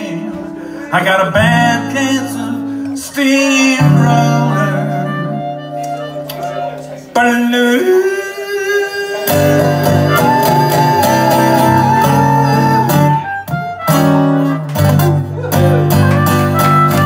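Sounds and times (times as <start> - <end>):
acoustic guitar chords: 0.0 - 17.0
harmonica bending notes: 7.9 - 17.0.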